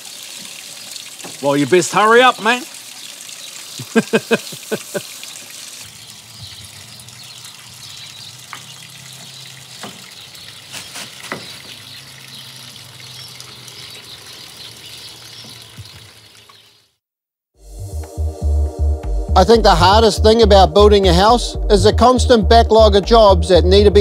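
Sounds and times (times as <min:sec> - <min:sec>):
water rushing and splashing: 0:00.0 - 0:16.6.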